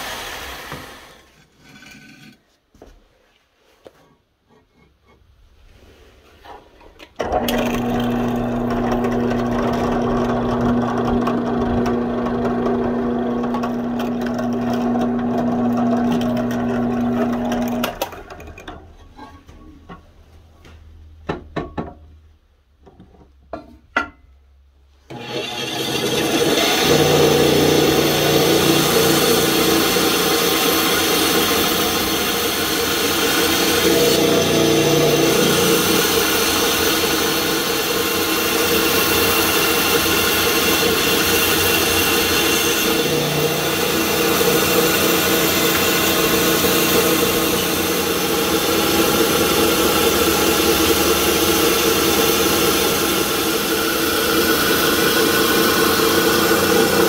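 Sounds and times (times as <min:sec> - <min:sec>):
bandsaw cutting wood: 0:00.0 - 0:02.4, 0:07.2 - 0:18.1, 0:25.1 - 0:57.0.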